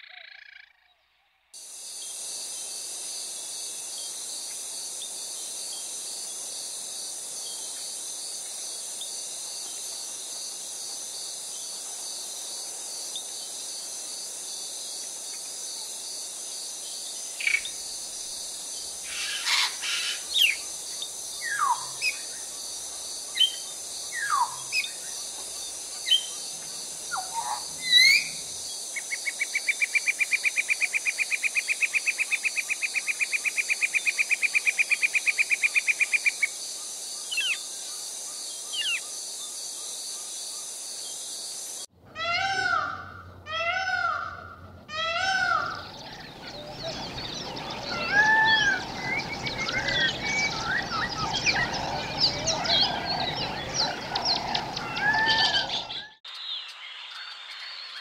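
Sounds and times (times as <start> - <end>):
high insect hum: 1.6 - 56.6
bird trill: 24.2 - 25.0, 45.0 - 56.2.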